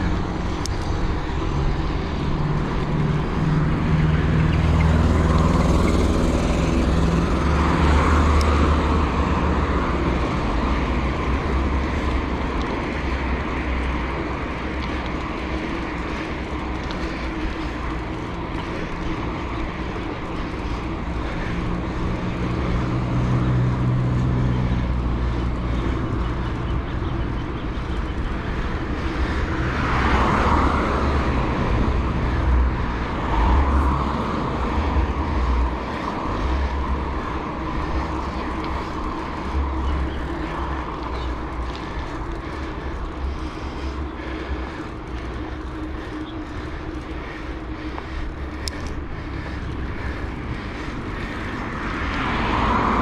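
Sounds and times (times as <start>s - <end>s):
steady low traffic rumble: 0.0s - 53.0s
vehicles passing with engine hum: 0.0s - 53.0s.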